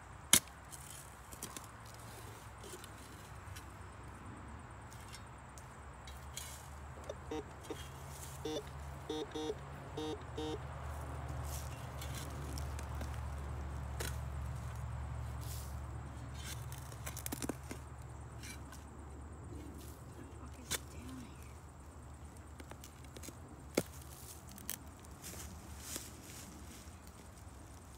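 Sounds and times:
metal detector beeps: 0:07.0 - 0:10.6.

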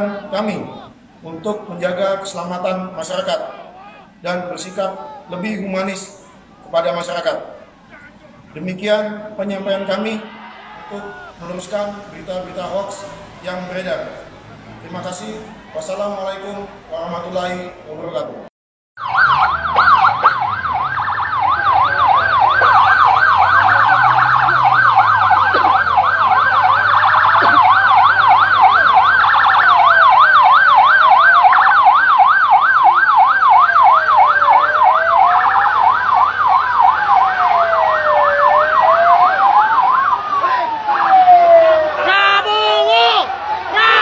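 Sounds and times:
siren wailing: 0:09.6 - 0:16.0, 0:19.0 - 0:44.0
siren yelping: 0:19.0 - 0:44.0.

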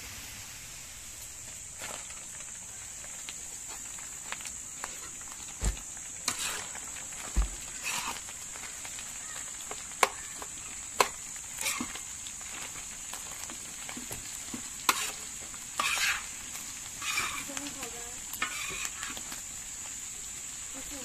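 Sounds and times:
food frying hiss: 0:00.0 - 0:21.0
utensil scraping metal pan: 0:06.2 - 0:06.8, 0:07.8 - 0:08.2, 0:11.0 - 0:12.0, 0:14.8 - 0:17.8, 0:18.4 - 0:19.2.

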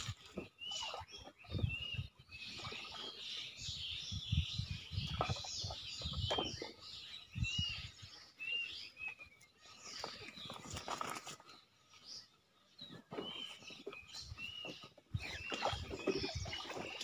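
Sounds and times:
water thumping against raft: 0:00.0 - 0:01.8, 0:05.0 - 0:06.8, 0:13.0 - 0:17.0
small birds chirping: 0:00.0 - 0:17.0.

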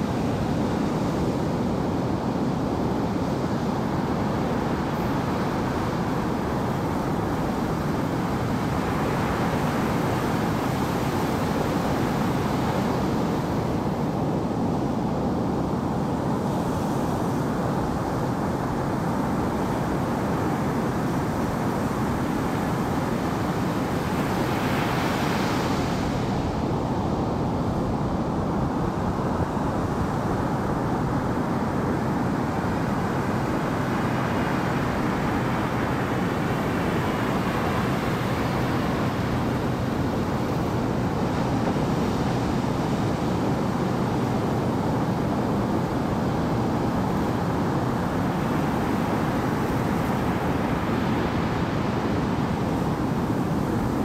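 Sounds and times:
ocean waves washing: 0:20.2 - 0:54.0.

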